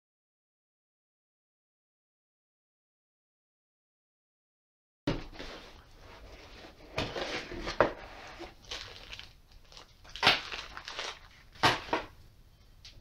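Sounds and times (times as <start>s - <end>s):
cardboard scraping and rustling: 5.1s - 8.9s.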